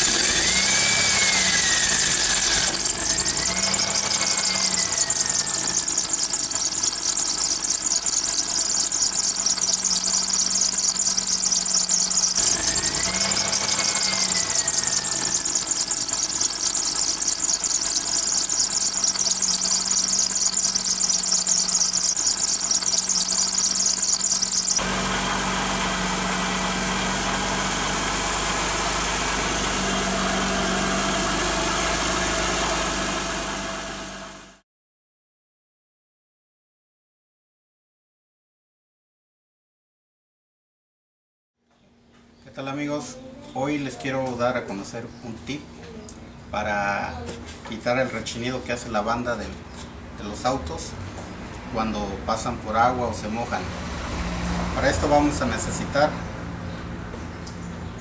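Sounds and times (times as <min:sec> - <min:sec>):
drive belt squealing: 0:00.0 - 0:25.8
car engine idling: 0:00.0 - 0:34.4.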